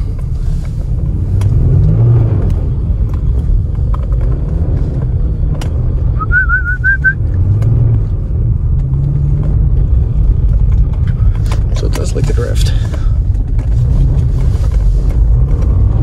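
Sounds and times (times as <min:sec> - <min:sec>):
car engine rumble: 0:00.0 - 0:16.0
wavering whistle-like tone: 0:06.2 - 0:07.2.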